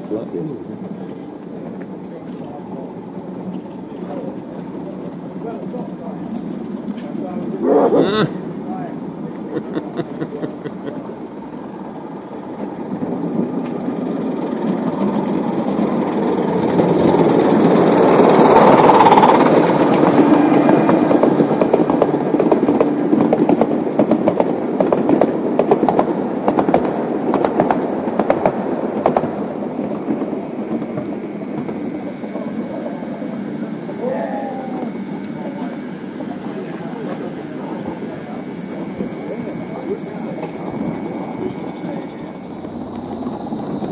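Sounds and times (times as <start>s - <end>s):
model train wheels clattering: 12.4s - 34.0s.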